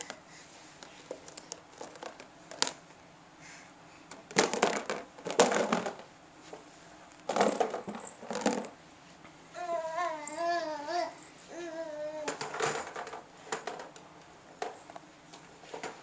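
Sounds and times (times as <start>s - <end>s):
plastic box clattering: 1.8s - 2.8s, 4.3s - 6.1s, 7.3s - 8.7s.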